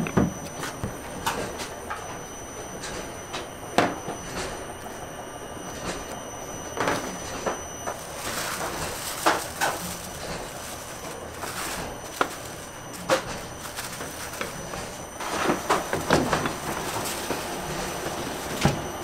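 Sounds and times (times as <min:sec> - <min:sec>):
steady background hum: 0:00.0 - 0:19.0
plastic sheeting rustling: 0:07.8 - 0:19.0.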